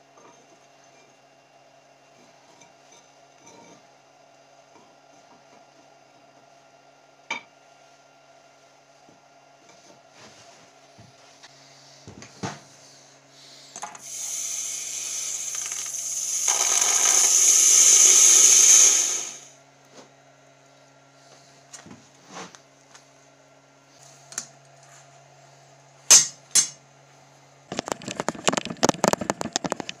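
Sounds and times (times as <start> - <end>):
hot metal hissing in water: 14.0 - 19.5
clicking and rattling: 27.7 - 30.0.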